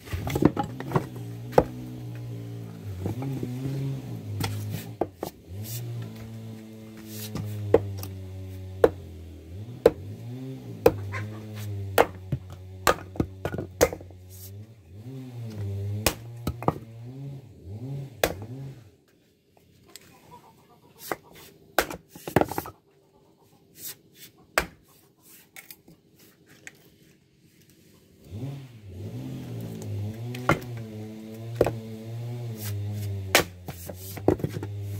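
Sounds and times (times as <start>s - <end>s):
axe splitting firewood: 0.0s - 17.2s, 18.0s - 18.8s, 21.0s - 22.8s, 23.8s - 25.9s, 29.0s - 34.9s.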